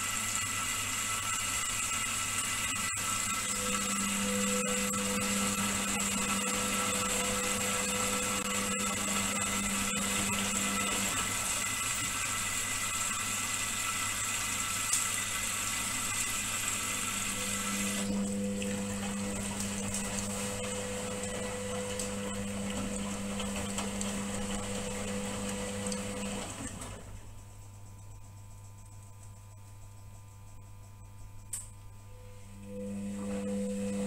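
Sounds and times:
motor whine: 0:00.3 - 0:27.3, 0:32.1 - 0:34.0
washing machine drum turning: 0:17.4 - 0:27.3.

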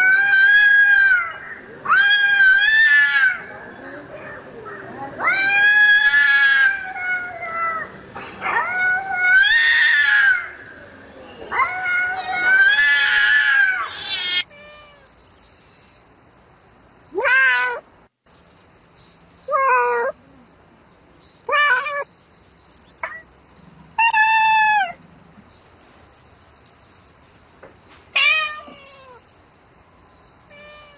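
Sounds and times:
cat yowling and meowing: 0:00.0 - 0:03.4, 0:05.2 - 0:10.6, 0:11.5 - 0:15.1, 0:17.2 - 0:17.8, 0:19.5 - 0:20.2, 0:21.5 - 0:22.1, 0:24.0 - 0:25.0, 0:28.2 - 0:29.2, 0:30.5 - 0:30.9.

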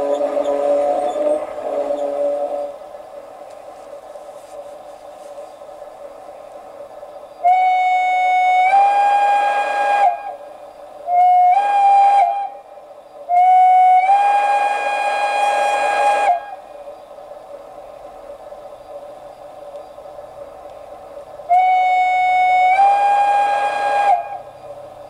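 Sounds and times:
steam whistle blasts: 0:00.0 - 0:02.8, 0:07.4 - 0:16.7, 0:21.5 - 0:24.6
rush of steam: 0:00.0 - 0:25.0.

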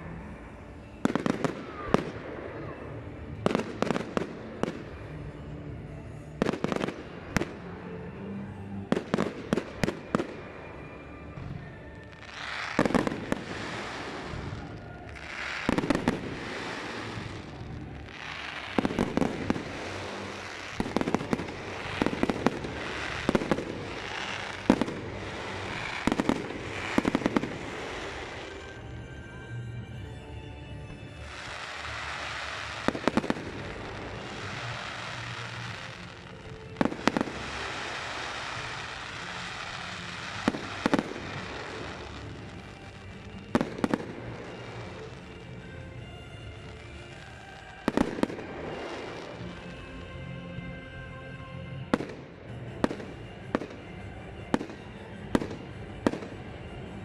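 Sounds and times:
firework crackling: 0:00.0 - 0:08.0, 0:08.8 - 0:29.8, 0:30.9 - 0:57.0
firework bangs: 0:11.3 - 0:28.8, 0:31.2 - 0:49.8.

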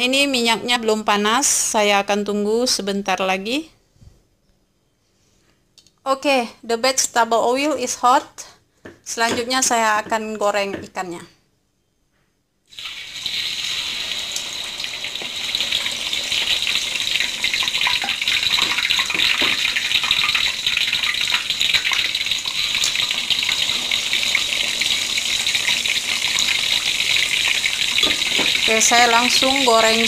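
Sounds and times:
fish deep-frying in oil: 0:12.7 - 0:30.0.

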